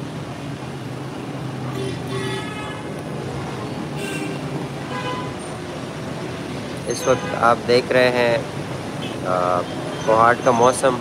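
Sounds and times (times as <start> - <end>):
traffic engines humming: 0.0 - 11.0
vehicle horn toots: 1.8 - 2.9.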